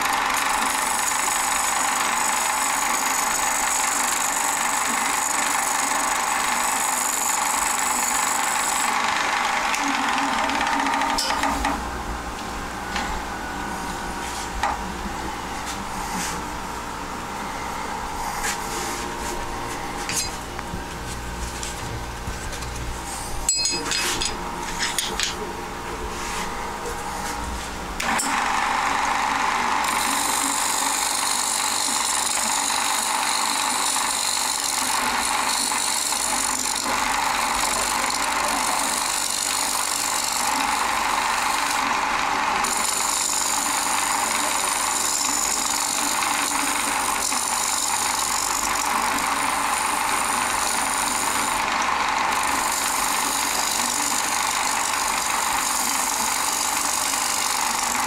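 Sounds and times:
wood lathe running: 0:00.0 - 0:11.9, 0:28.0 - 0:58.0.

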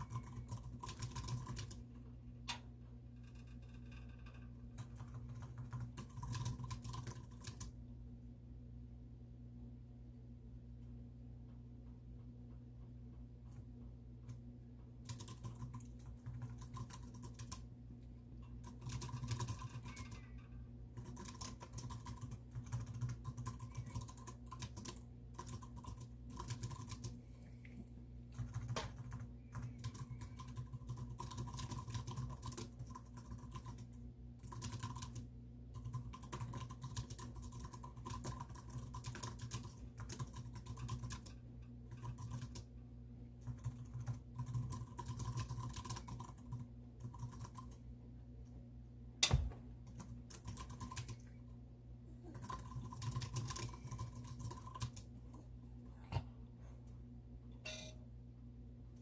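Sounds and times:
computer keyboard typing: 0:00.0 - 0:02.0, 0:03.3 - 0:07.8, 0:15.0 - 0:17.7, 0:18.4 - 0:27.2, 0:28.4 - 0:42.7, 0:43.4 - 0:47.8, 0:49.8 - 0:51.4, 0:52.2 - 0:55.2
steady low hum: 0:00.0 - 0:59.0.

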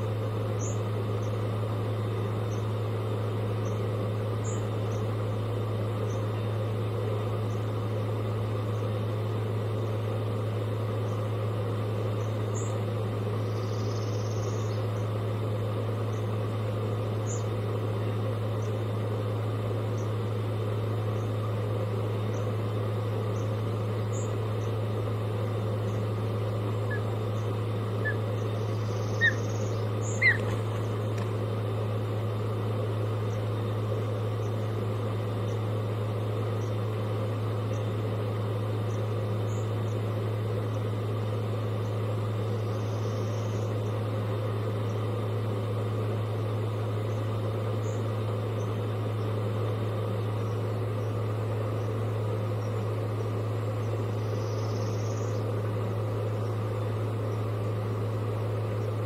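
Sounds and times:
steady low hum: 0:00.0 - 0:59.0
osprey chirping calls: 0:25.8 - 0:31.1.

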